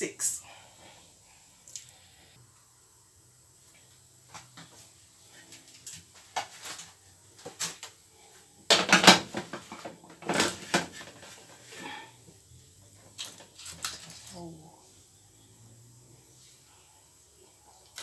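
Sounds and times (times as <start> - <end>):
aluminium foil crinkling: 13.0 - 14.4.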